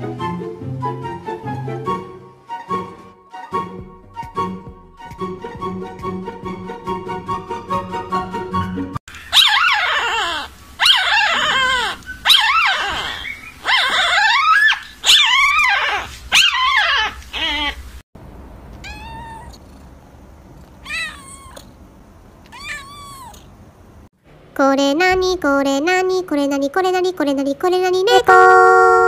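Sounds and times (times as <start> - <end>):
puppy crying: 9.1 - 17.9, 18.8 - 19.6, 20.8 - 21.7, 22.5 - 23.5
cat meowing softly: 18.8 - 19.8, 20.8 - 21.7, 22.4 - 23.5
high-pitched falling wails: 28.1 - 29.0.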